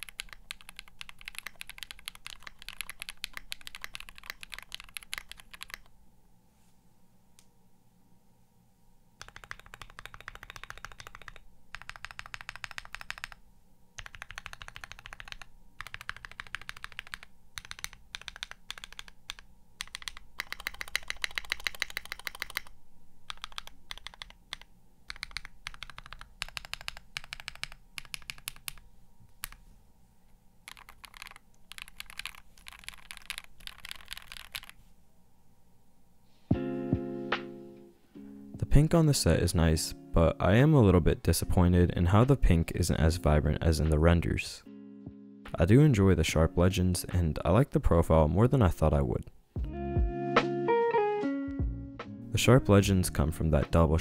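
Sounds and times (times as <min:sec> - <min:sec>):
typing on mechanical keyboard: 0:00.0 - 0:05.9, 0:09.2 - 0:13.4, 0:14.0 - 0:22.7, 0:23.3 - 0:28.8, 0:29.4 - 0:29.6, 0:30.7 - 0:34.8.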